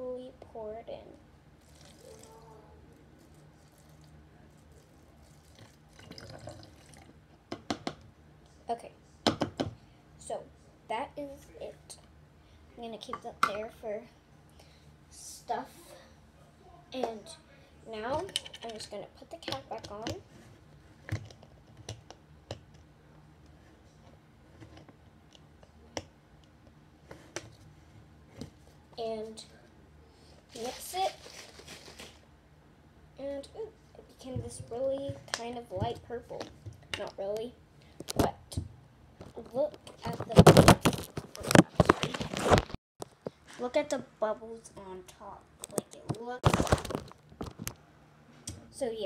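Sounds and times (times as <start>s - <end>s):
liquid pouring and dripping: 1.6s - 2.4s, 4.8s - 7.2s.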